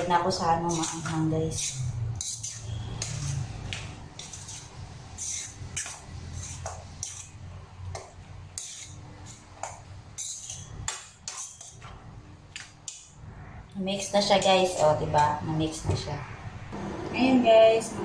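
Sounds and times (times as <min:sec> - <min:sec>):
metal spoon scraping a bowl: 0:00.5 - 0:11.9.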